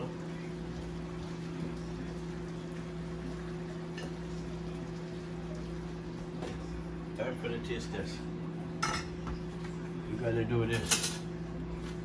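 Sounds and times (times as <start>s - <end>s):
pot simmering with soft bubbling: 0.0s - 7.2s.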